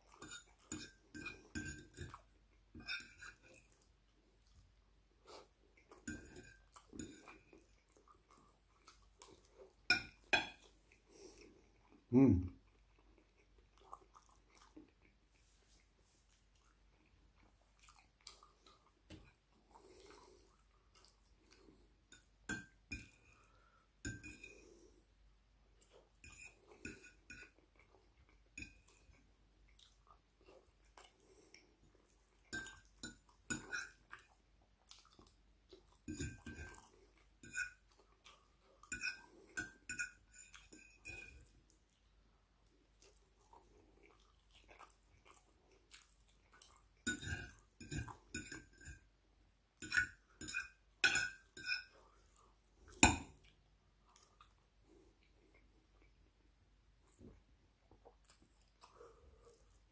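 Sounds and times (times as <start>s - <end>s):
faint chewing: 0.0s - 49.2s, 49.8s - 59.9s
fork clinking on ceramic plate: 0.2s - 2.2s, 49.8s - 51.9s.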